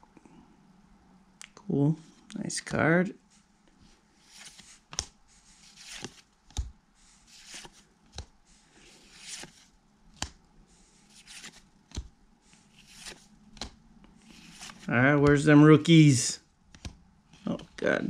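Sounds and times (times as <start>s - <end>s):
cards swishing off a stack: 11.1s - 12.1s.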